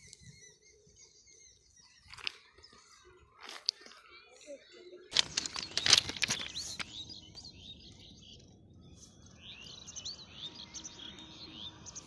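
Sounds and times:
small birds chirping: 0.0s - 12.0s
sharp crackles: 5.1s - 7.0s.

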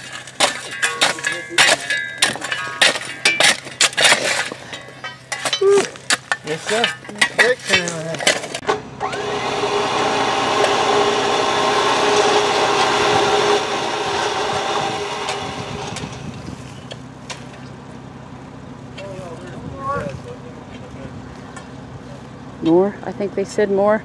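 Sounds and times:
motor running with hum: 8.6s - 17.0s.

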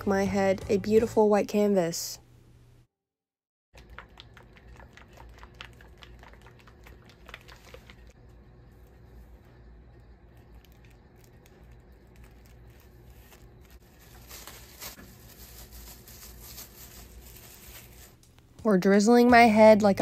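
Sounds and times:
low steady hum: 3.8s - 20.0s
rustling and crinkling: 8.8s - 18.6s.

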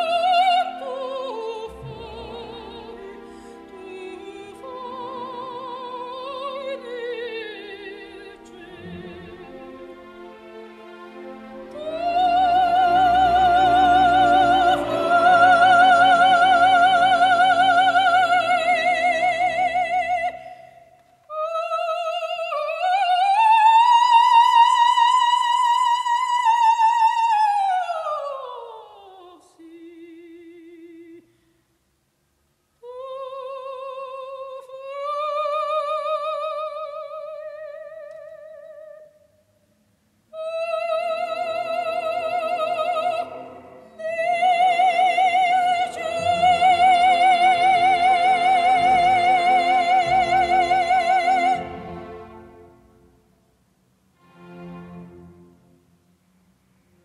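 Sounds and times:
soft orchestral accompaniment: 0.0s - 20.6s, 32.9s - 57.0s
operatic soprano singing: 0.0s - 31.3s, 32.8s - 39.3s, 40.3s - 52.7s.

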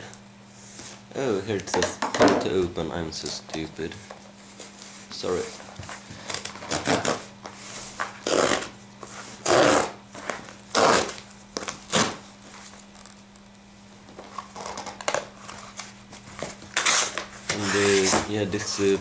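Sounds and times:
cardboard tear strip ripping: 6.3s - 7.3s, 8.2s - 8.7s, 9.4s - 10.0s, 10.7s - 12.2s, 16.7s - 18.2s.

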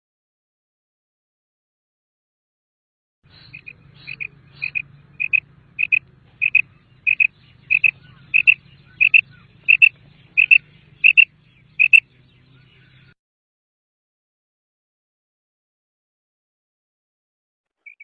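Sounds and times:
quail calling: 3.3s - 13.2s.

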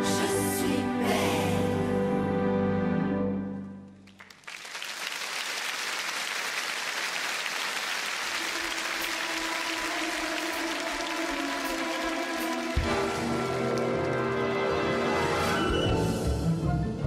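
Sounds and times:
music: 0.0s - 4.2s, 8.4s - 17.0s
audience applauding: 4.0s - 15.0s.

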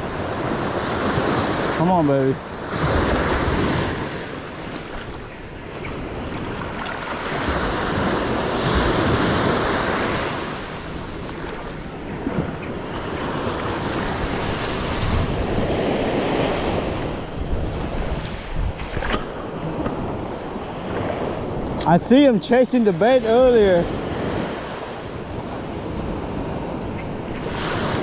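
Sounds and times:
small waves breaking on shore: 0.0s - 28.0s
wind on microphone: 0.0s - 28.0s.

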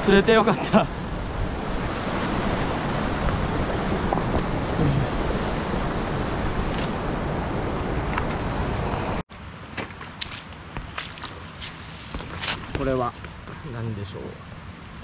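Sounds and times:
light footsteps: 9.8s - 13.7s.

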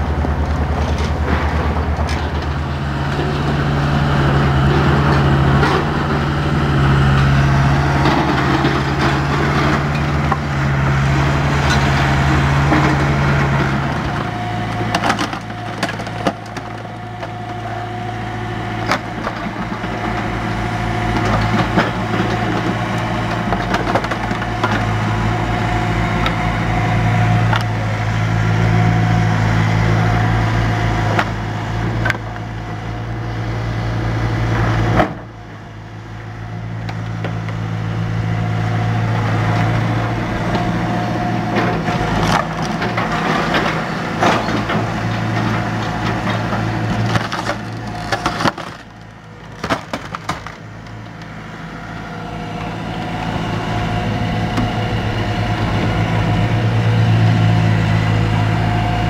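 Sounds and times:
excavator diesel engine running: 0.0s - 59.0s
grapple crunching through debris: 41.5s - 51.2s.

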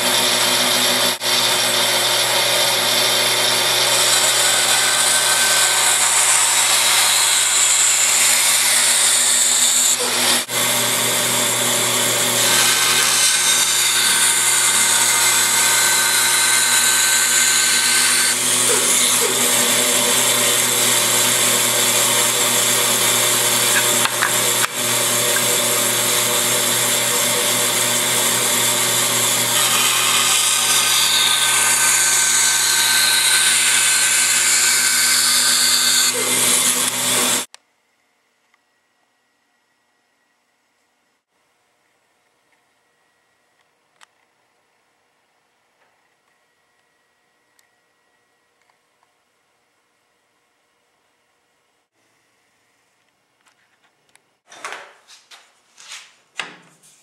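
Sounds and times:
band saw cutting wood: 0.0s - 37.5s.

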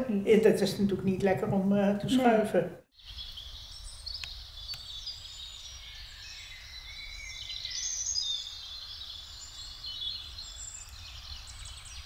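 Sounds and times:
songbirds singing: 3.0s - 12.0s.

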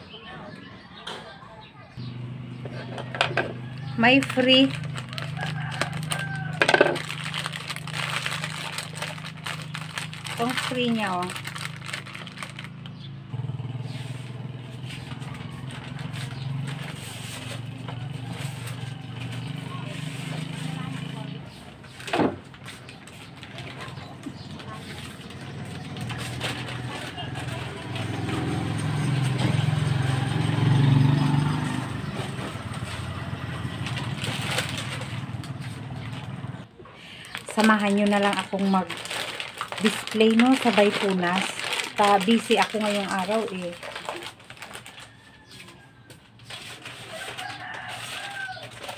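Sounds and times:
vehicle engine running: 2.0s - 45.6s
packets rustling and clattering: 3.0s - 12.9s, 21.8s - 28.2s, 32.3s - 36.4s, 37.2s - 45.4s, 46.3s - 48.9s
motorcycle engine idling: 11.4s - 21.9s, 31.6s - 36.7s.

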